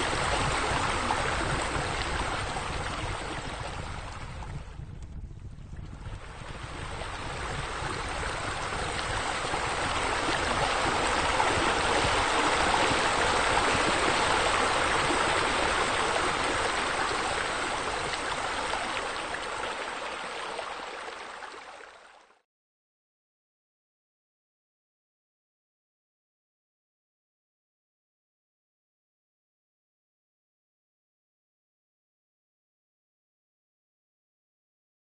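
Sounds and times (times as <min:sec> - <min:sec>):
water pouring into a pool: 0:00.0 - 0:04.5, 0:06.2 - 0:22.4.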